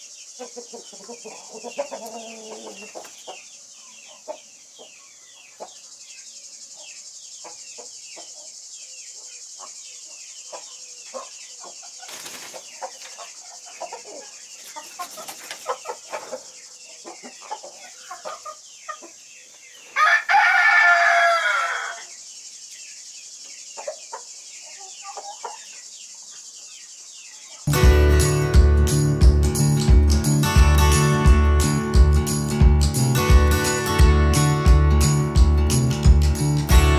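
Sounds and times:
chickens clucking and chirping: 0:00.0 - 0:36.9
rooster crowing: 0:20.0 - 0:22.1.

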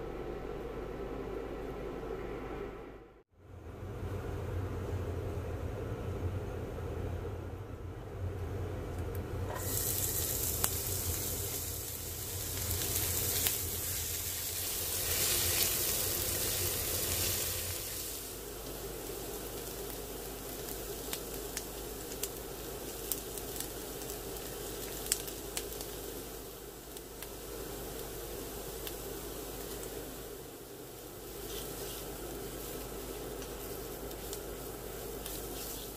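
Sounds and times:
low hum: 0:00.0 - 0:09.6
onion sizzling in oil: 0:09.5 - 0:35.9.

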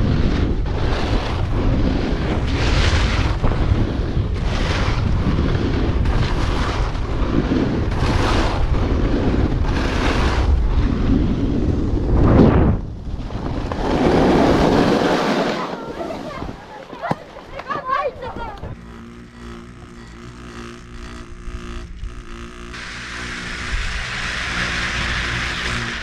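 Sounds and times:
snowboard edge scraping snow: 0:00.0 - 0:18.9, 0:22.5 - 0:26.0
wind buffeting microphone: 0:00.0 - 0:19.1.

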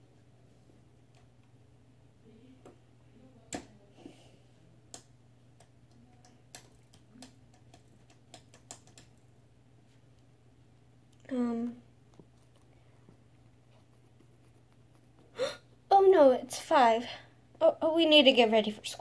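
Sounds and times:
low steady hum: 0:00.0 - 0:19.0
small clicks and taps: 0:04.9 - 0:09.2.

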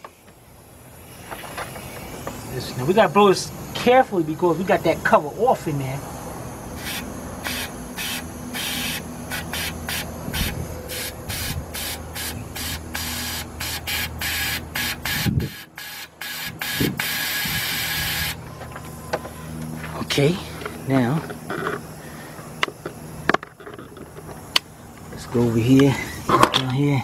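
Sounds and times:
compressed-air blow gun hissing: 0:06.2 - 0:18.4.

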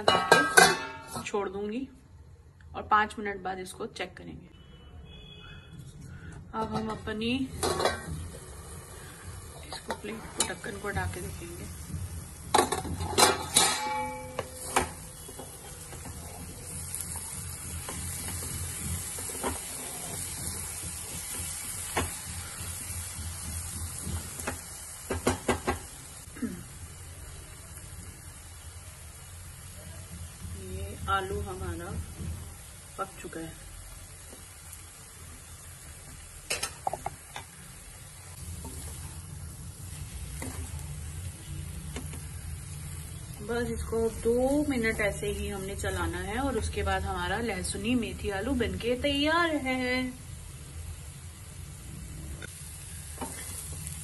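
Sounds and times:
steel lid clanking: 0:00.0 - 0:01.2, 0:06.7 - 0:08.1, 0:12.5 - 0:15.7
food sizzling: 0:00.0 - 0:01.7, 0:06.1 - 0:54.0.

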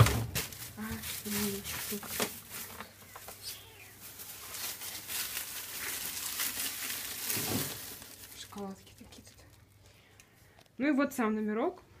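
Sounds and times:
rustling handling noise: 0:00.0 - 0:10.8.

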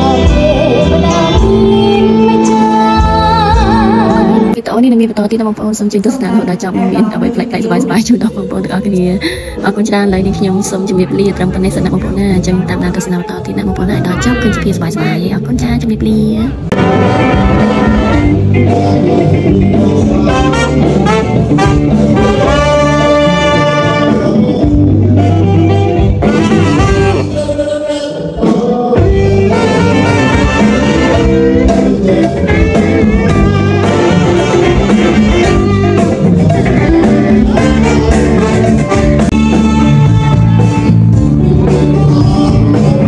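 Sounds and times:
electric bass: 0:00.0 - 0:04.6, 0:08.0 - 0:27.8, 0:28.4 - 0:43.0
person singing: 0:00.0 - 0:04.6, 0:16.8 - 0:40.8, 0:41.4 - 0:43.0
drums: 0:00.0 - 0:05.0, 0:06.9 - 0:43.0.

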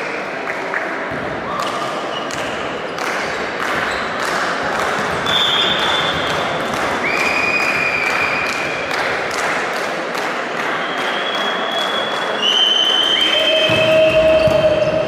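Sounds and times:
crowd hubbub in sports hall: 0:00.0 - 0:15.0
high whistle: 0:05.2 - 0:06.2, 0:07.0 - 0:08.6, 0:10.8 - 0:15.0
longer lower whistle: 0:10.8 - 0:15.0.

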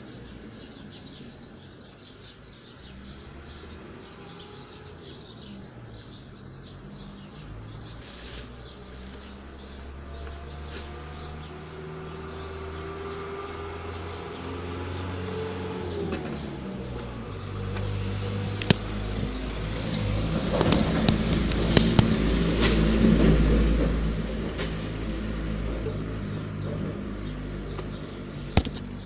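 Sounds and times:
small birds chirping: 0:00.0 - 0:22.2, 0:23.7 - 0:29.0
camera handling knocks and clicks: 0:28.5 - 0:29.0.

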